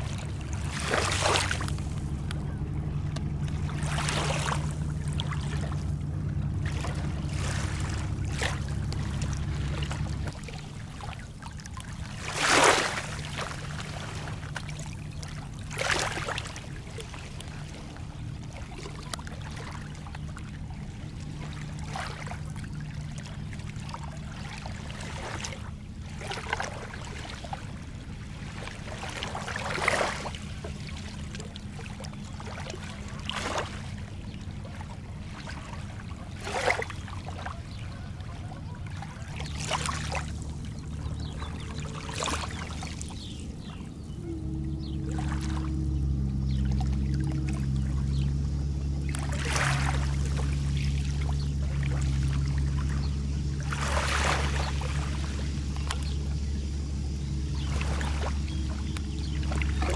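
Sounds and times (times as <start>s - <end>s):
waves lapping on pebbly beach: 0.0s - 2.2s, 3.3s - 5.8s, 6.5s - 17.9s, 24.2s - 43.8s, 49.0s - 59.9s
steady low rumble: 0.0s - 59.9s.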